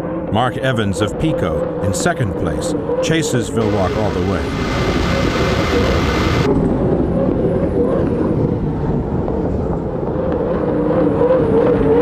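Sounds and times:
hydroplane engines racing: 2.8 - 6.5.

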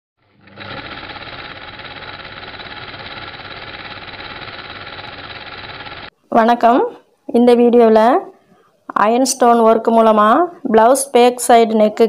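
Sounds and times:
machine rattling: 0.2 - 6.1.

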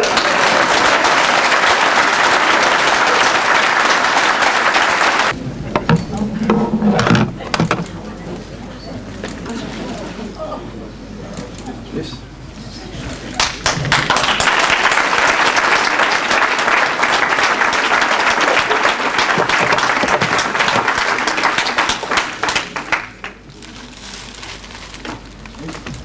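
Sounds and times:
audience applauding: 0.0 - 5.4, 13.3 - 23.5.

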